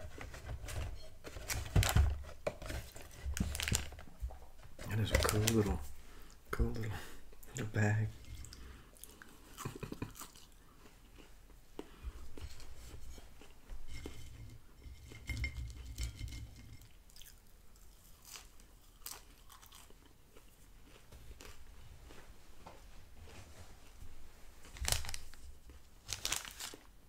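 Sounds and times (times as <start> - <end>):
man chewing crisp fries: 8.2 - 13.7, 17.1 - 22.6.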